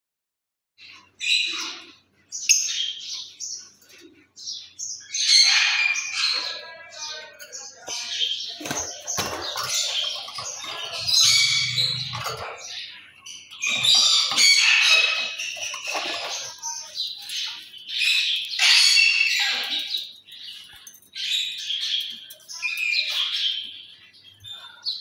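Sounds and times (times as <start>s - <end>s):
bird squawking and chattering: 8.5s - 20.0s.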